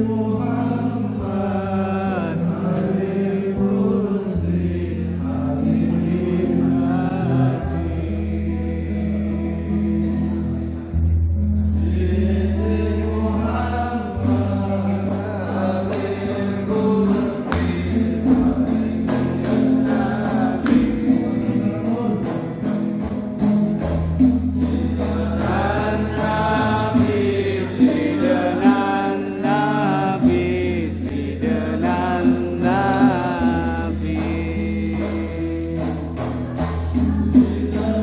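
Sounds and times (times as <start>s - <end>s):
chorus of voices singing: 0.0s - 38.0s
sustained bass notes: 0.0s - 38.0s
high percussion beat: 14.0s - 38.0s.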